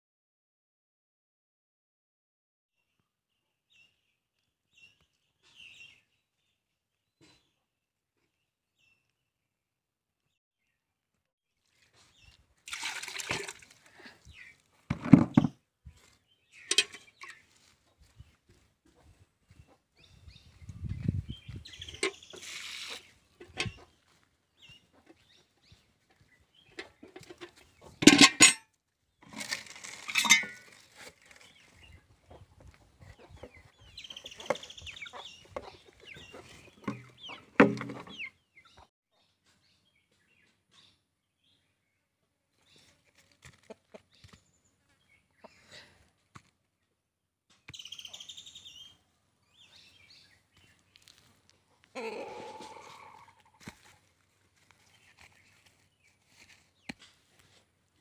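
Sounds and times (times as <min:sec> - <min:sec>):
chickens clucking: 0:16.6 - 0:19.9, 0:20.7 - 0:28.1, 0:31.6 - 0:38.9, 0:43.2 - 0:45.9, 0:51.5 - 0:54.0.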